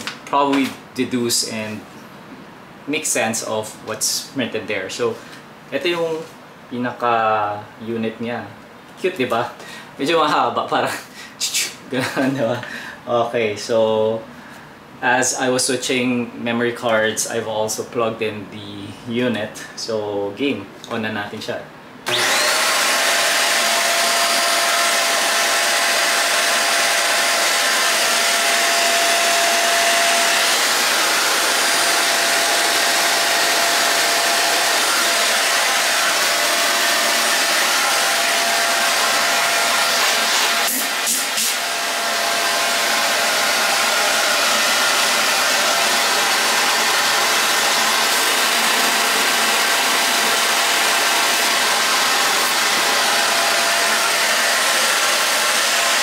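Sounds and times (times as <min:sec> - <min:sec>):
stick vacuum cleaner running: 0:22.1 - 0:56.0.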